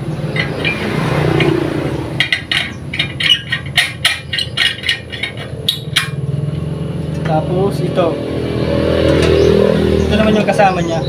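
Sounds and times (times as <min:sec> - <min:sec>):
metal pot clinking: 0:02.2 - 0:06.2.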